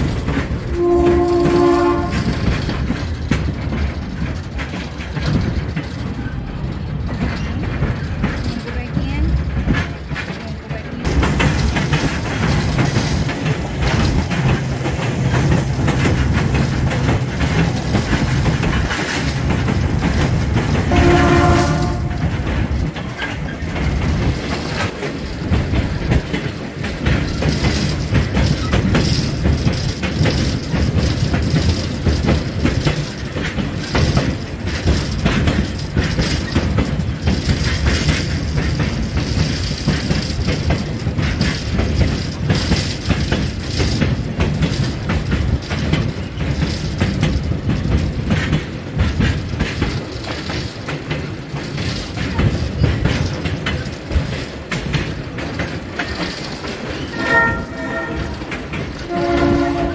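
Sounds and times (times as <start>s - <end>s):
train rumbling: 0.0s - 59.9s
wheels clacking over rail joints: 0.0s - 59.9s
locomotive horn: 0.7s - 2.5s, 20.8s - 22.4s, 57.1s - 59.9s.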